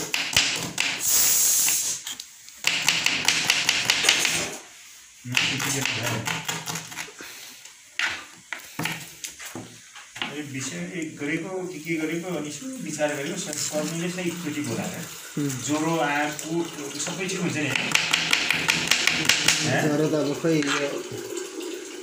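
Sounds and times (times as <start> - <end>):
hissing noise: 0.8 - 2.3
faint voice: 14.6 - 15.8
knife tapping on cutting board: 17.7 - 19.7.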